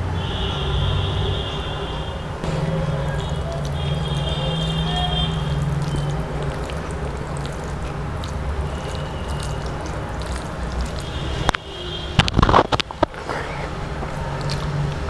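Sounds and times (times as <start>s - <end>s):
hand mixing wet rice: 2.6s - 12.2s, 13.2s - 15.0s.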